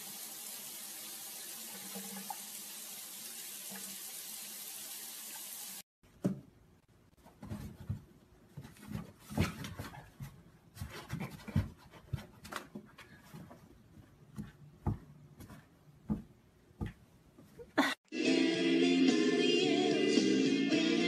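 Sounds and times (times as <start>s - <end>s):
loud music with singing: 18.1s - 21.0s.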